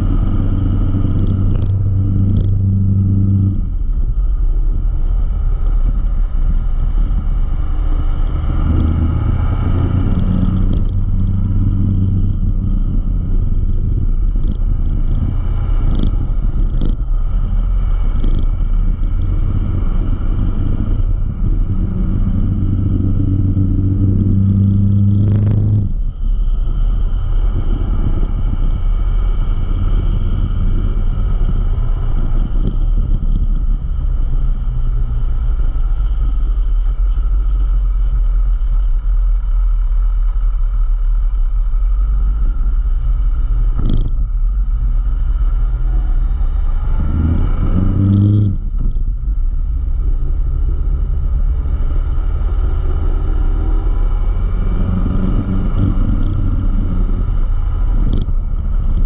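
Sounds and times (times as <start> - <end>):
motorcycle engine: 0.0 - 59.0
wind and road noise: 0.0 - 59.0.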